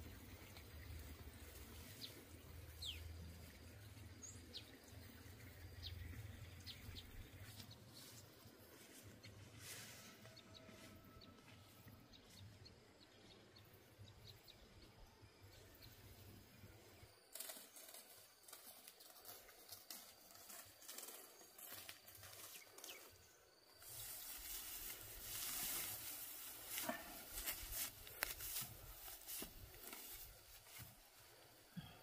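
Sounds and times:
dry straw rustling and crackling: 17.3 - 31.4.

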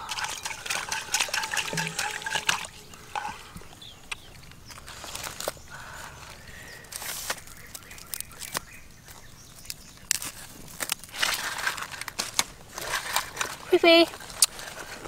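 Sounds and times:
charred skin and skewers crinkling: 0.0 - 15.0
rustling: 0.0 - 15.0.

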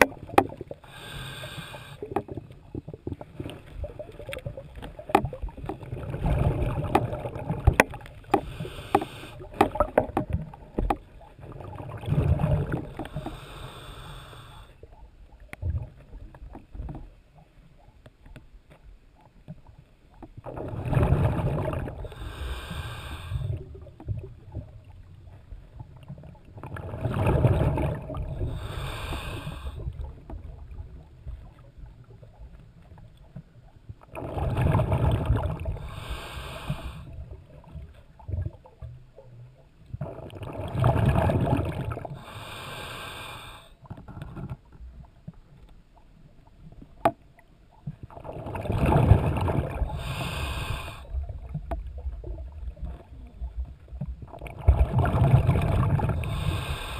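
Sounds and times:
exhaled bubbles rushing: 2.0 - 8.2, 9.4 - 13.2, 20.4 - 22.2, 25.7 - 28.7, 34.1 - 35.9, 39.9 - 42.2, 48.1 - 56.7.

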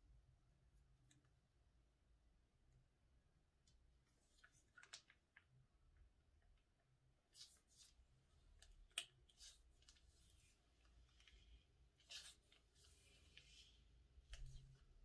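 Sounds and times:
piping bag clicks and crackles: 4.6 - 5.6.

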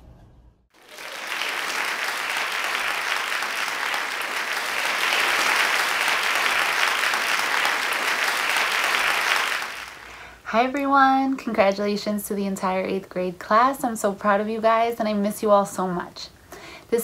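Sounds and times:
crowd applause: 0.8 - 10.4.

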